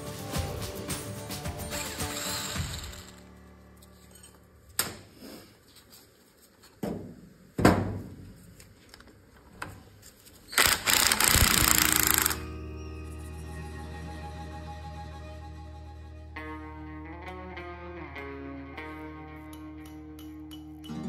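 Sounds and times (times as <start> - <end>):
cordless power driver spinning: 1.8 - 3.2, 10.6 - 12.4.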